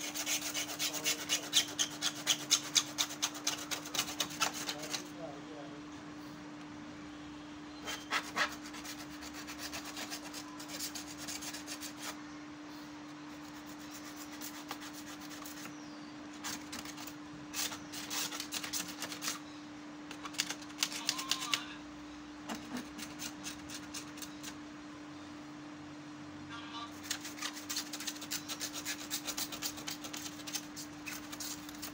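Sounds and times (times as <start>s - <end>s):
rasping scraping on plastic grille: 0.0s - 5.1s, 16.4s - 19.4s, 27.0s - 31.9s
steady low hum: 0.0s - 31.9s.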